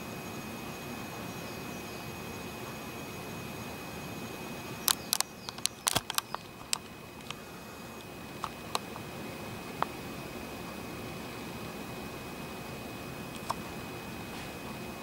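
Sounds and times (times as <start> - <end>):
steady hiss: 0.0 - 15.0
camera handling clicks and taps: 4.9 - 7.4.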